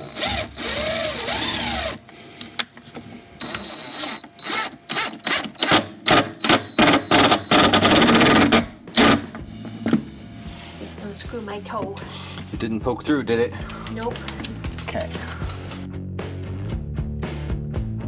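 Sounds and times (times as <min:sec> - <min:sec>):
impact driver motor whirring: 0:00.0 - 0:02.0.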